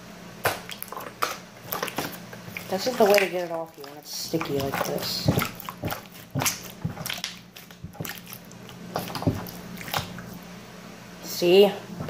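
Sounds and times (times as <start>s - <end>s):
low steady hum: 0.0s - 12.0s
slime squishing and popping: 4.4s - 8.4s.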